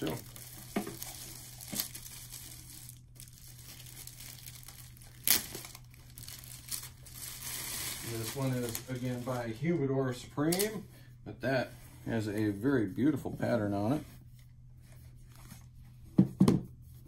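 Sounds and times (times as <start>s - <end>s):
plastic wrapping crinkling and tearing: 0.0s - 9.6s, 10.4s - 10.8s.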